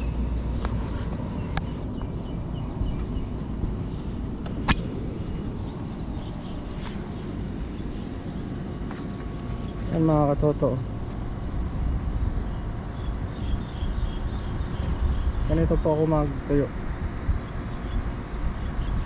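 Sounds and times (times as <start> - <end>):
wind noise on microphone: 10.8 - 19.0.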